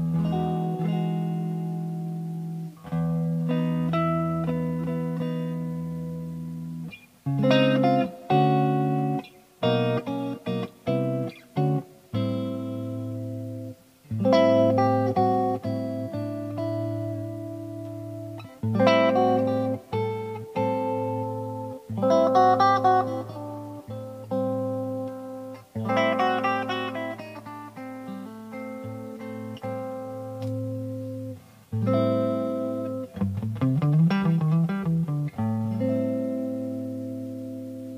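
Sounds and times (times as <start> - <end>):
electric guitar chord stabs: 0.0 - 37.9
electric guitar chords strummed: 0.0 - 37.9.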